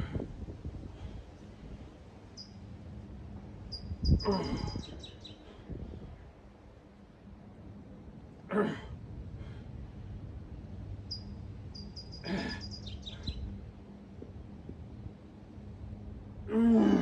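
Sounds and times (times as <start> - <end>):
bird chirping: 2.3 - 2.6, 3.7 - 5.4, 11.1 - 13.5.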